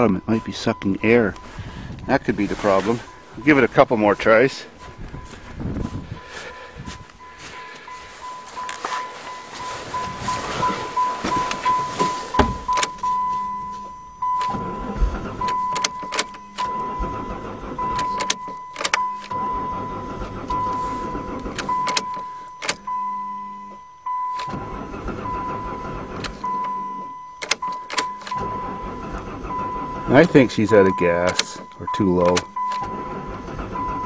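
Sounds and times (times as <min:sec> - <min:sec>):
electronic beep: 0:00.0 - 0:04.4, 0:06.8 - 0:34.0
starter cranking engine: 0:00.0 - 0:23.1, 0:24.1 - 0:34.0
key turning clicks: 0:17.9 - 0:19.3, 0:27.4 - 0:28.4, 0:30.8 - 0:32.9.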